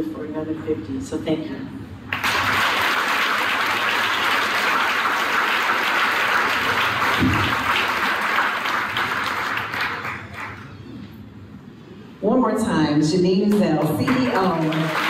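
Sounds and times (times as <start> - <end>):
audience applauding: 2.1 - 10.8, 13.8 - 15.0.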